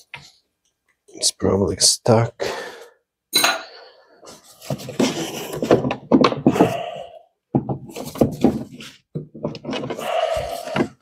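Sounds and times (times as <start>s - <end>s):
plastic knocks and thunks: 4.7s - 6.9s, 7.5s - 10.0s.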